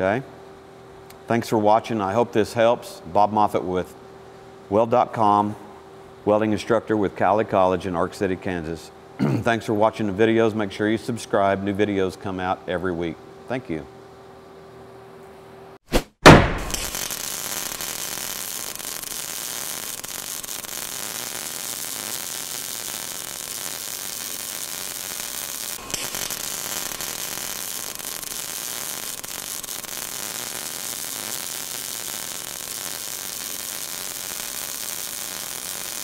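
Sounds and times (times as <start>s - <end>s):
welding arc hissing: 16.3s - 36.0s.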